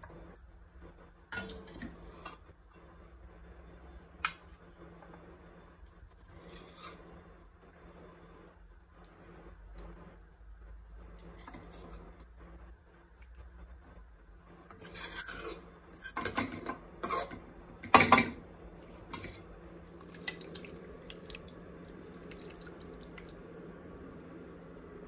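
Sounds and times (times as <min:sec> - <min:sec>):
metal ladle scraping pot: 0:01.3 - 0:02.4, 0:06.1 - 0:07.2, 0:14.7 - 0:17.4.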